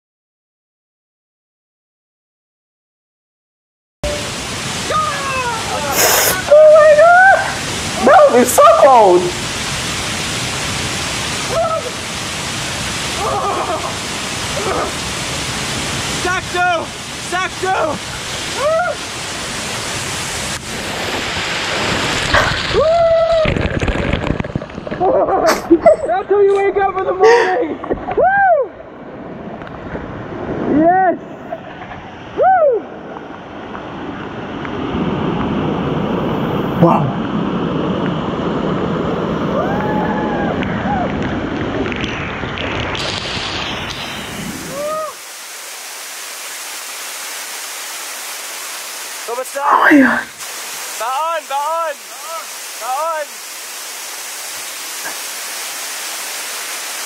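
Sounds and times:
waterfall water splashing: 4.0s - 57.0s
short exclamation: 4.9s - 8.3s, 49.6s - 50.4s
man yelling: 16.2s - 18.0s, 49.3s - 50.3s, 51.0s - 53.3s.

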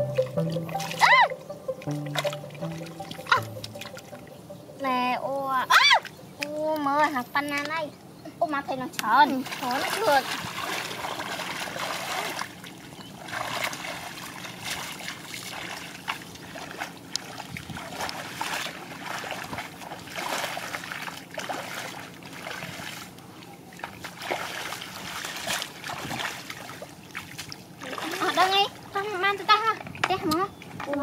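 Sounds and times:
feet splashing in muddy puddle: 9.3s - 23.2s, 23.8s - 28.6s.

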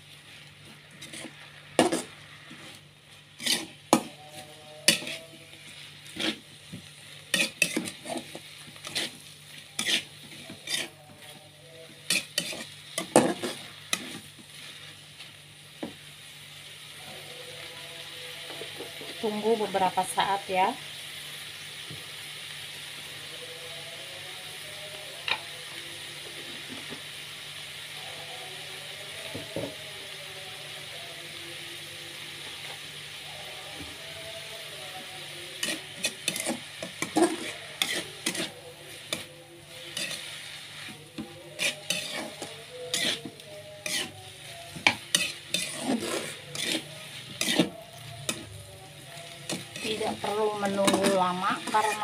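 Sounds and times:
food sizzling in a pan: 0.0s - 52.0s
spatula scraping and knocking pan: 0.9s - 2.8s, 3.4s - 5.2s, 6.1s - 10.9s, 12.0s - 14.5s, 35.6s - 48.4s.

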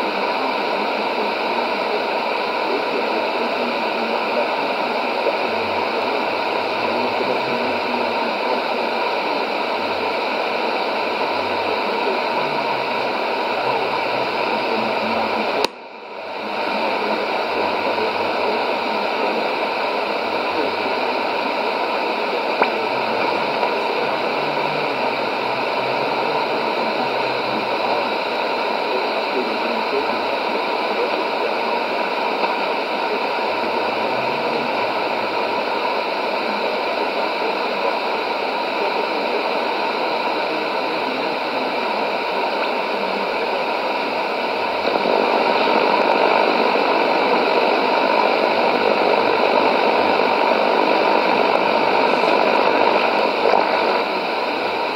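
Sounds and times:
radio static hiss: 0.0s - 54.9s.

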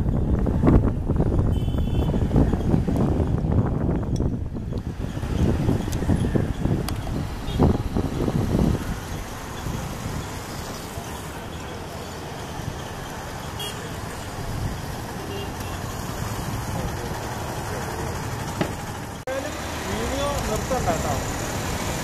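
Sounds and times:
voices: 7.4s - 22.0s.

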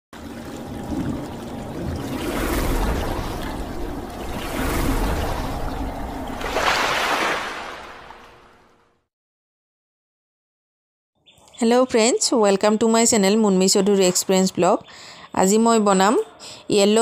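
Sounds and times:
splashing rushing water: 0.2s - 8.8s.

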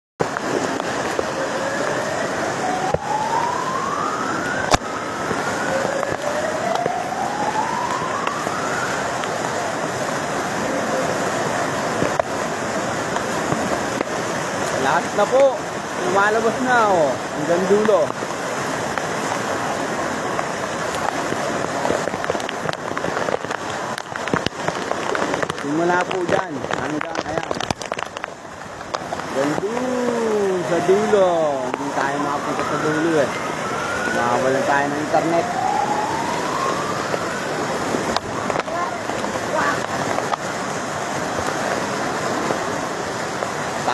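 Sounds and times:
rushing floodwater: 0.2s - 43.9s
water splashing: 0.2s - 43.9s
thin rising tone: 29.7s - 37.9s.

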